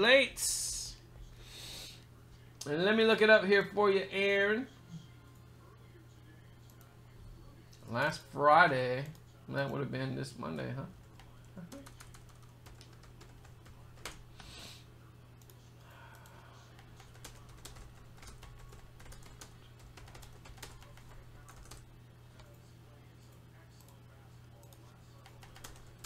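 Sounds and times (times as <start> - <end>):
steady low hum: 0.0 - 26.0
typing on computer keyboard: 11.1 - 14.2, 16.2 - 21.8, 24.6 - 26.0.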